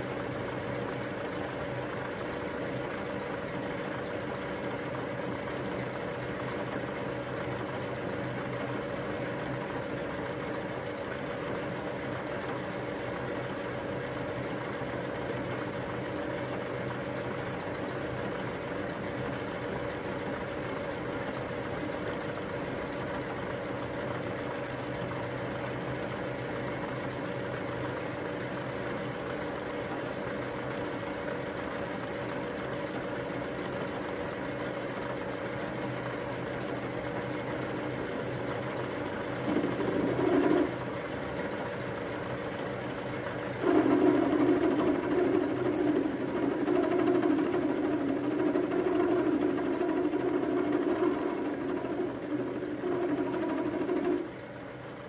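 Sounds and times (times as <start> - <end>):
milling machine humming: 37.3 - 42.1, 43.2 - 54.6.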